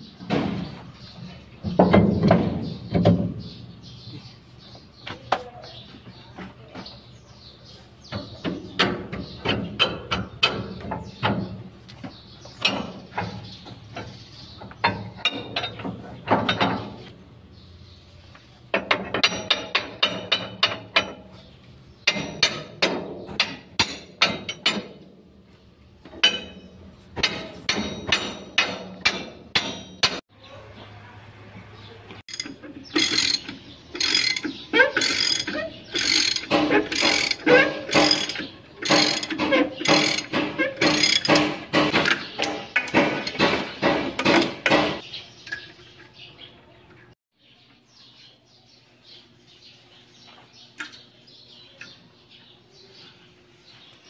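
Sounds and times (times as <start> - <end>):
hammer striking steel: 26.2 - 30.2.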